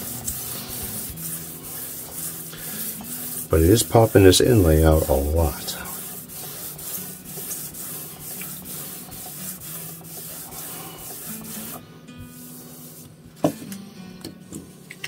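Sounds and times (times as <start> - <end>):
sandpaper scratching on wood: 0.0 - 13.0.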